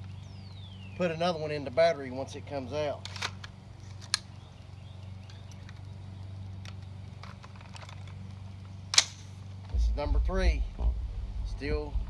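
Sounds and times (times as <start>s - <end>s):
rifle action metallic click: 3.0s - 4.3s, 8.9s - 9.3s
low hum: 9.6s - 12.0s.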